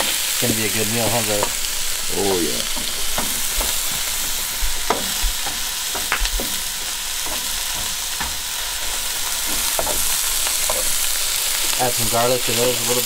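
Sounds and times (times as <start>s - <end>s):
food sizzling in a frying pan: 0.0s - 13.0s.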